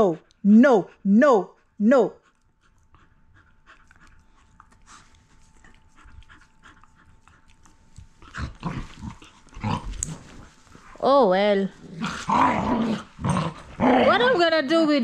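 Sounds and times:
dogs panting: 0.0 - 11.2.

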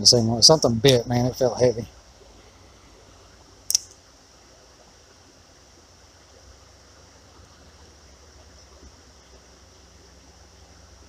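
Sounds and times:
sharp click: 3.7 - 4.0.

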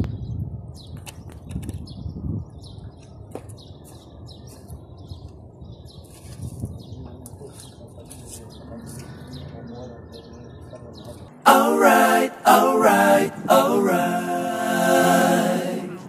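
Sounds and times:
small birds chirping: 0.0 - 11.4.

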